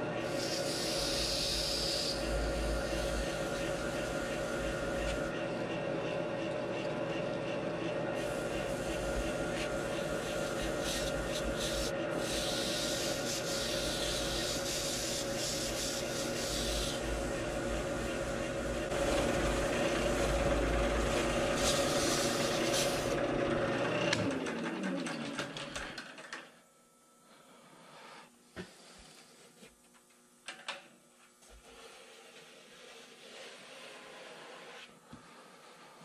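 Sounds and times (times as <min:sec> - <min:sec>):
tool scraping spinning foam: 0:00.0 - 0:06.2, 0:08.1 - 0:23.2, 0:31.7 - 0:35.0
wood lathe humming: 0:00.0 - 0:24.4.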